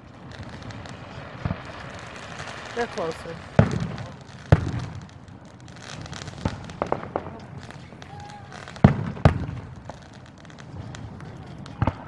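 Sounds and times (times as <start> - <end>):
firework shells booming: 0.0 - 12.0
light firework pops: 0.0 - 12.0.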